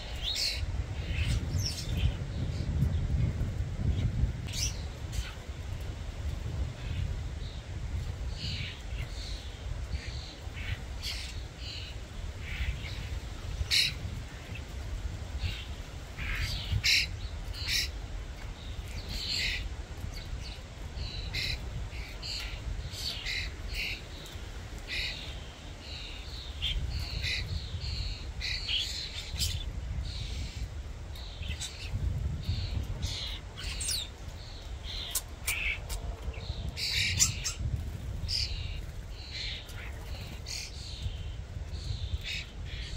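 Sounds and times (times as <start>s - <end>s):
starlings chattering: 18.6s - 42.9s.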